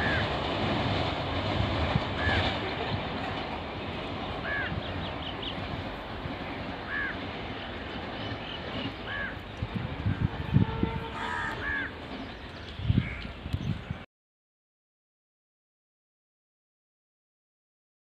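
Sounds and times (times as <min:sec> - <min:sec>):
bird calling: 0:03.8 - 0:09.6, 0:11.0 - 0:13.7.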